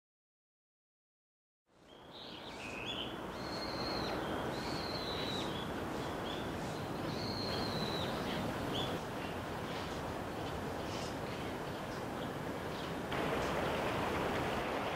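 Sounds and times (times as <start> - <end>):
kingfisher whistled calls: 2.7 - 6.4, 7.1 - 8.9.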